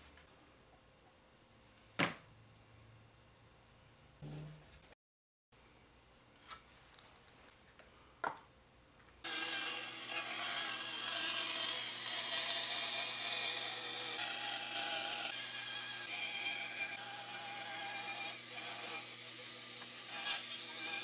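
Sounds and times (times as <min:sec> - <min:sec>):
bandsaw cutting plywood: 0:09.2 - 0:21.0.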